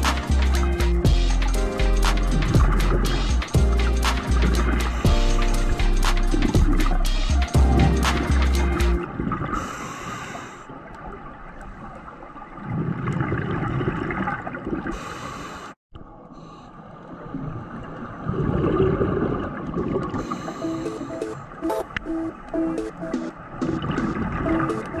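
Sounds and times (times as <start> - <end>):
regulator breathing hiss: 9.6 - 10.7
exhaled bubbles gurgling: 10.8 - 15.0, 17.2 - 21.9.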